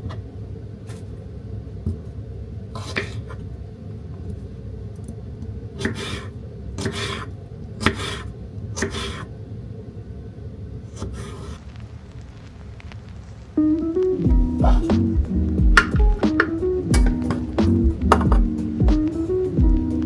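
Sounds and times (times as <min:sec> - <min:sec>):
low background hum: 0:00.0 - 0:20.0
knife slicing cucumber on board: 0:06.8 - 0:08.2.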